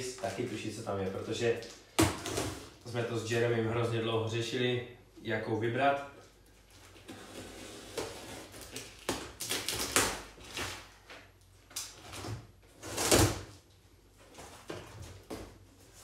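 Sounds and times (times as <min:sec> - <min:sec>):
cardboard flaps tearing open: 0:06.9 - 0:11.1, 0:11.7 - 0:13.6
knife slitting packing tape: 0:07.1 - 0:10.8.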